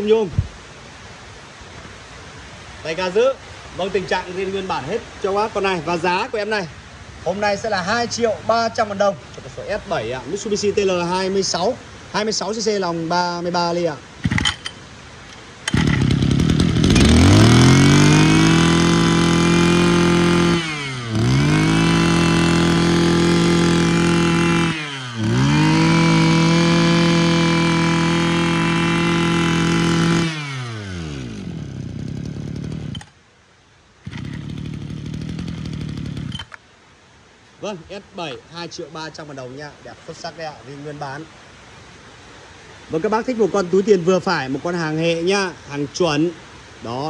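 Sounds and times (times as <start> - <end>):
brush cutter engine revving: 14.2 - 33.2, 34.0 - 36.6.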